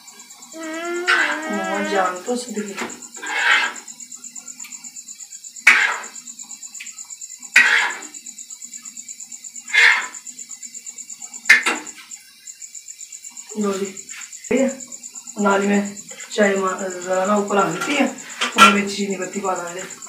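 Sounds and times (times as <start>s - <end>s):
cricket chirping: 0.0s - 20.0s
metal spoon scraping frying pan: 3.2s - 3.8s, 5.7s - 6.1s, 7.6s - 8.1s, 9.7s - 10.2s.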